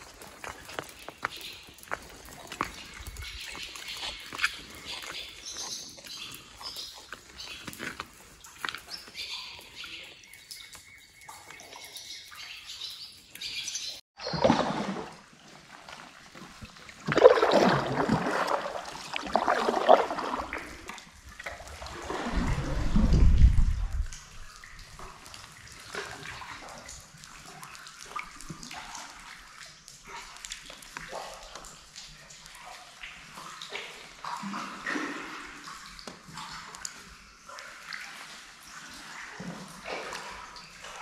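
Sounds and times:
water splashing from paddle: 14.2 - 36.8
low rumble: 22.3 - 24.3.

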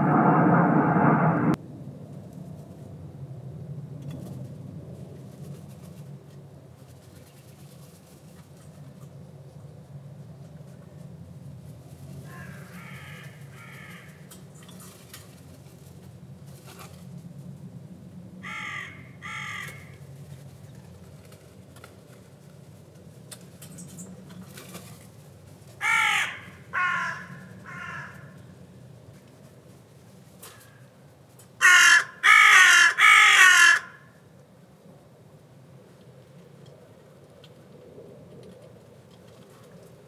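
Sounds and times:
distant aircraft drone: 0.0 - 40.0
crows cawing: 12.3 - 14.2, 18.4 - 20.0, 25.8 - 28.4, 31.6 - 34.2.

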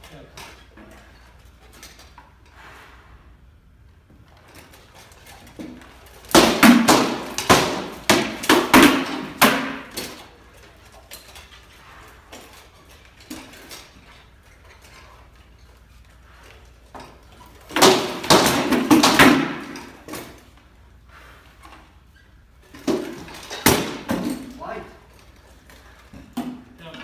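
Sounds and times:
sword blows on shields and armour: 6.2 - 10.2, 17.7 - 20.3, 22.9 - 24.5.

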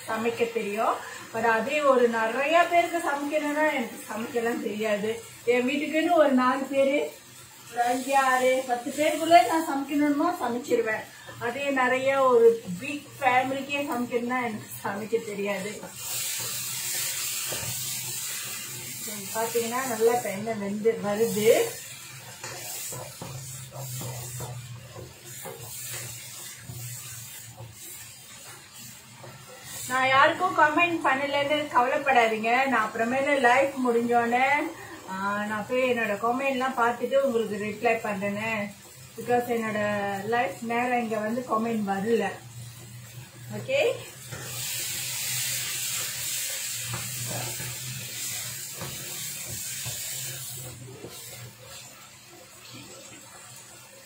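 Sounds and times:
paste sizzling in oil: 0.0 - 54.0
spatula scraping a wok: 14.1 - 30.8, 41.3 - 53.0.

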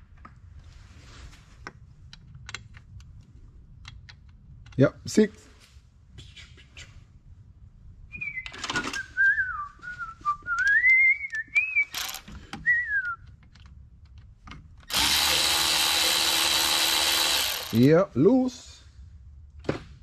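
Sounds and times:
person whistling a tune: 8.1 - 12.0, 12.6 - 13.2
cordless electric ratchet running: 12.0 - 12.2, 14.9 - 17.9.

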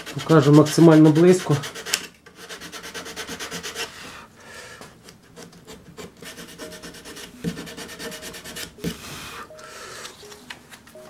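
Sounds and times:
sandpaper rubbing on wood: 0.0 - 4.0, 5.7 - 9.5.

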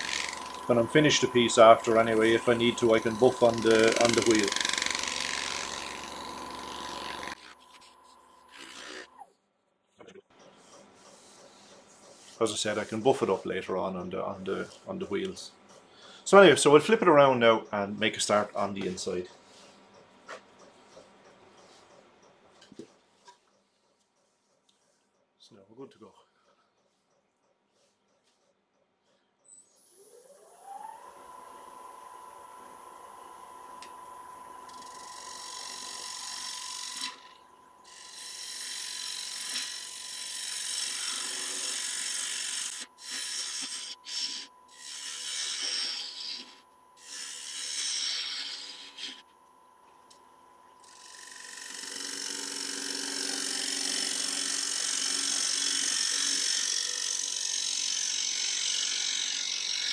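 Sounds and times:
gouge cutting wood shavings hissing: 0.0 - 7.5, 10.6 - 15.1, 38.1 - 49.2
lathe motor whining: 0.0 - 9.2, 29.6 - 49.2, 50.8 - 59.9.

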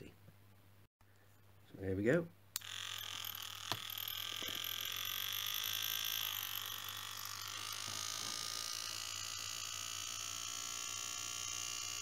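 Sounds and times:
rotary tool whining: 2.6 - 12.0.

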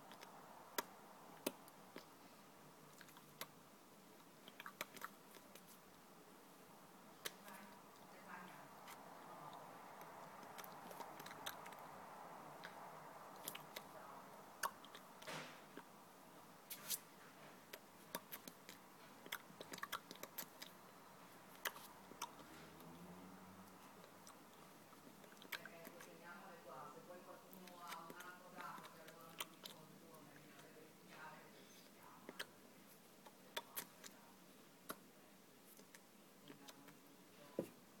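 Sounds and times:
mouth clicks and lip smacks: 0.0 - 2.2, 2.9 - 3.6, 4.2 - 6.0, 7.2 - 8.1, 8.8 - 13.9, 14.5 - 15.9, 17.6 - 26.1, 27.5 - 30.7, 31.6 - 37.1.

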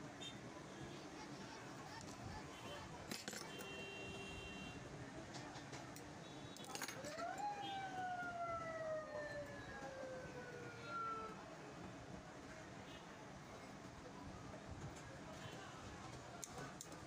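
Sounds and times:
siren wail: 6.8 - 11.4.

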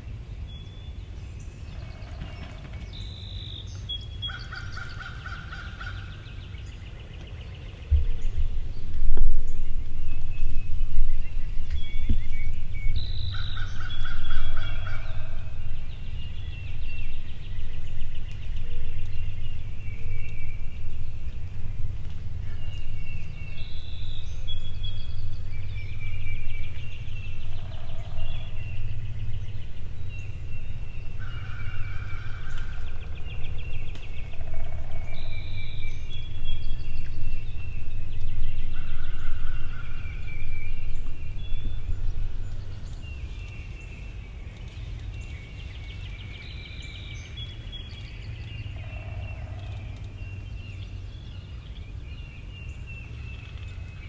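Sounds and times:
turkeys gobbling: 4.3 - 6.1, 13.3 - 15.5
low rumble: 6.0 - 51.4.

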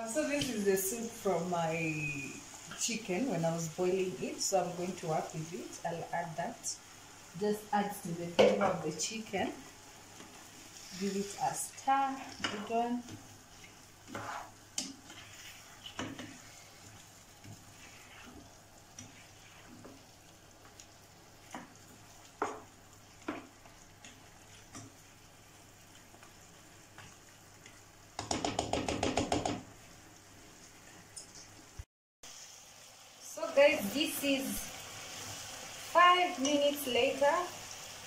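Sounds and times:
faint sizzle: 0.0 - 38.0
spatula stirring stew in pan: 9.6 - 30.0
knocks against pan: 28.2 - 29.7.

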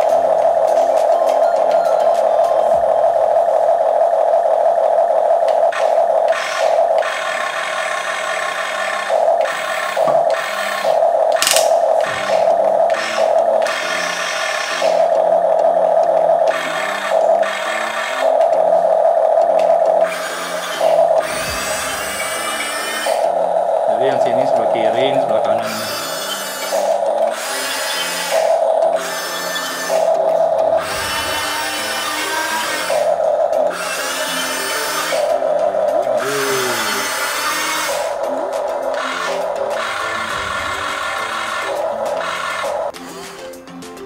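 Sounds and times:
electric gear motors whirring: 0.0 - 43.1
background music: 11.3 - 44.0.

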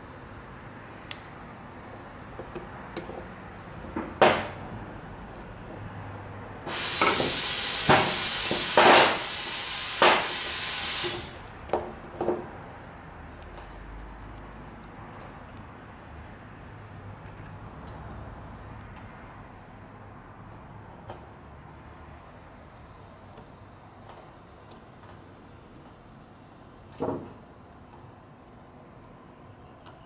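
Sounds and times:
pressurised jet hissing: 6.7 - 11.5.

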